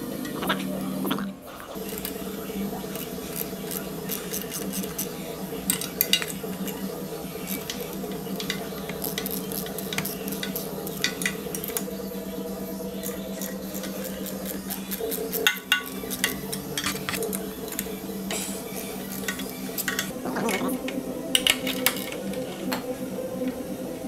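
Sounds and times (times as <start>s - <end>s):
ratchet clicking: 2.9s - 6.8s, 7.4s - 11.9s, 13.0s - 17.9s
metal tools clinking: 18.6s - 20.6s.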